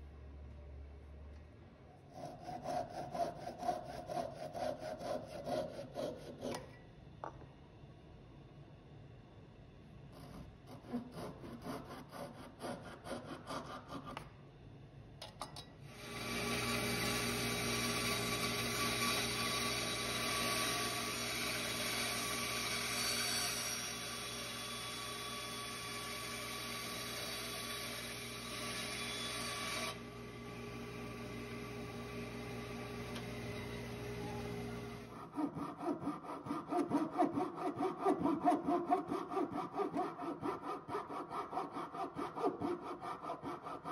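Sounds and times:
handsaw rasping: 2.1s - 6.8s, 10.2s - 14.3s, 35.1s - 43.9s
bandsaw humming: 16.0s - 43.9s.

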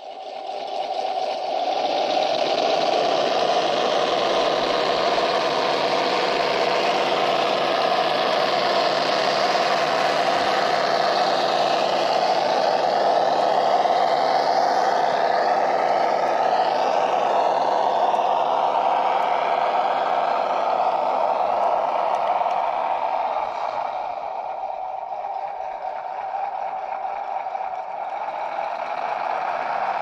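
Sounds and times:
simulated truck engine tone: 0.0s - 30.0s.

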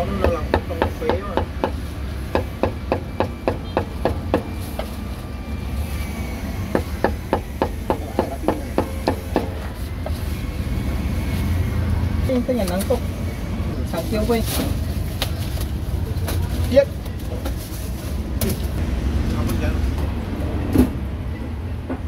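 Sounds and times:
cleaver chopping meat on a block: 0.0s - 4.5s, 6.8s - 9.6s.

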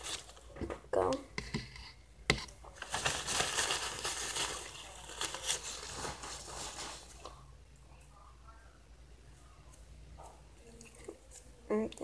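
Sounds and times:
paper rustling and crackling: 0.0s - 0.6s, 2.4s - 7.4s.

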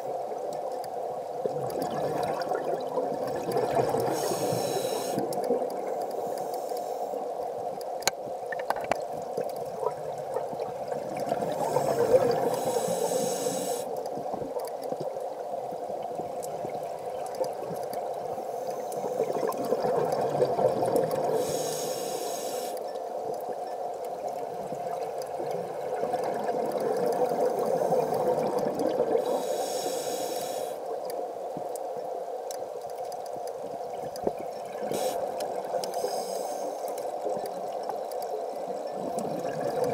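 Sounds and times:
underwater hum: 0.0s - 39.9s
regulator breathing hiss: 4.1s - 5.3s, 6.1s - 7.3s, 11.6s - 14.0s, 18.4s - 19.4s, 21.3s - 22.8s, 29.2s - 30.9s, 34.9s - 37.0s.

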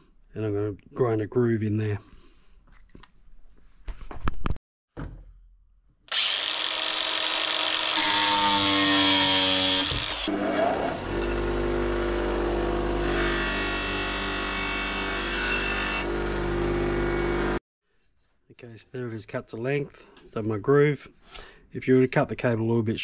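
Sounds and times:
angle grinder cutting wire: 6.1s - 17.6s
bench grinder humming: 6.1s - 17.6s.

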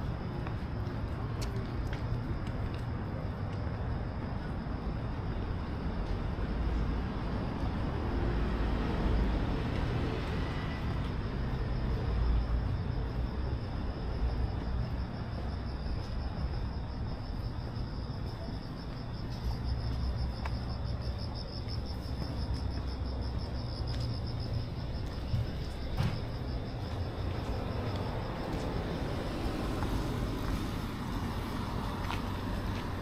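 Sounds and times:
crickets chirping: 0.0s - 33.0s
low traffic rumble: 0.0s - 33.0s.

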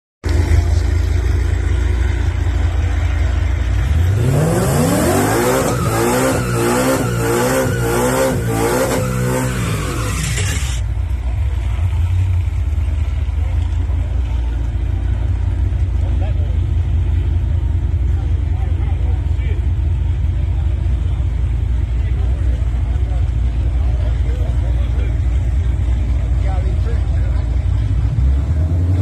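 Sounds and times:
tyre burnout: 0.2s - 19.6s
car engine idling and revving: 0.2s - 29.0s.

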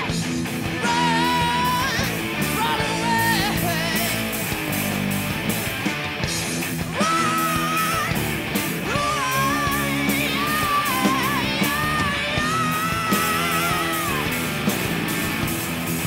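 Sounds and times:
bass guitar: 0.0s - 16.0s
drums: 0.0s - 16.0s
electric guitars: 0.0s - 16.0s
lead vocal singing: 0.7s - 4.3s, 6.9s - 15.1s.

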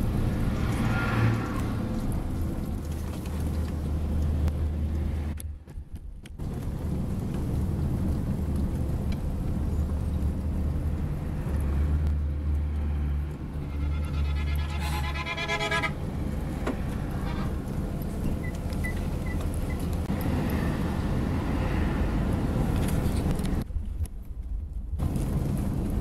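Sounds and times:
coach engine and road rumble: 0.0s - 26.0s.

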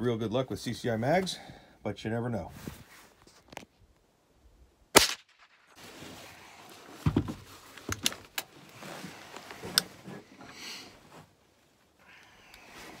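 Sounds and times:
rifle shot: 5.0s - 5.8s.

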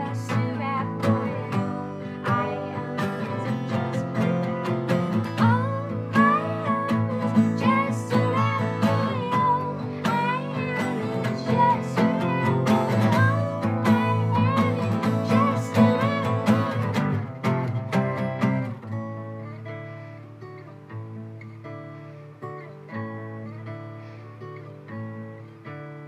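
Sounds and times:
woman singing: 0.0s - 17.3s
strummed acoustic guitars: 0.0s - 26.0s.

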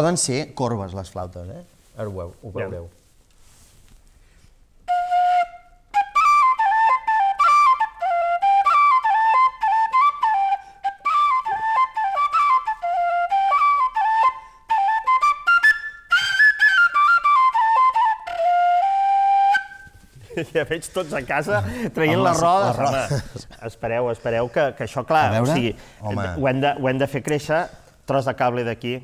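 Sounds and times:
flute playing quick melody: 4.9s - 20.0s.

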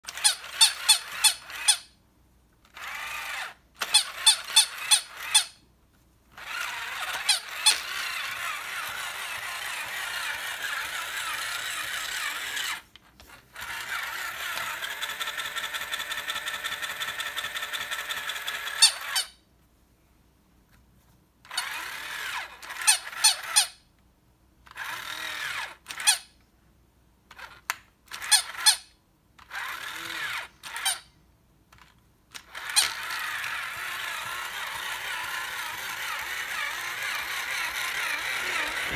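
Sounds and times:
toy motor whirring and ticking: 0.0s - 2.0s, 2.6s - 5.6s, 6.3s - 19.4s, 21.4s - 23.8s, 24.7s - 26.4s, 27.3s - 31.1s, 31.7s - 38.9s
toy dog electronic barks: 0.1s - 1.9s, 2.8s - 5.6s, 18.4s - 19.4s, 29.5s - 31.1s, 32.5s - 38.9s.

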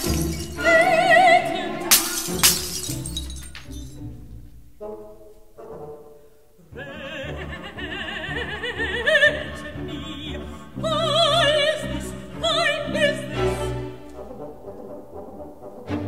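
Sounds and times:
operatic high voice singing: 0.0s - 2.2s, 6.6s - 14.1s
orchestra: 0.0s - 16.0s.

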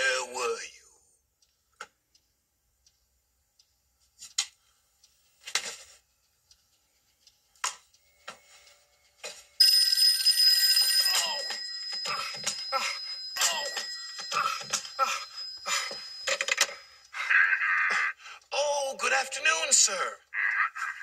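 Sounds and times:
telephone bell ringing: 8.3s - 17.0s.

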